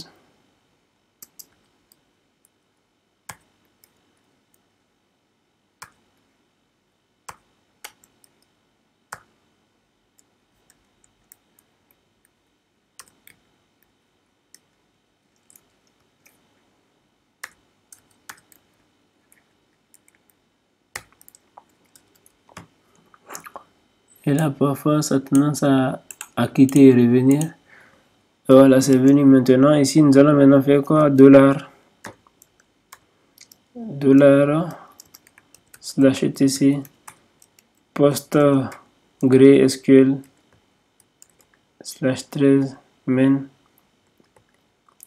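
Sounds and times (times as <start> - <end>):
computer keyboard keystrokes: 1.2 - 2.0, 7.3 - 8.5, 13.0 - 13.4, 17.4 - 18.7, 20.9 - 22.7, 26.1 - 27.5, 35.0 - 35.9, 40.2 - 41.6.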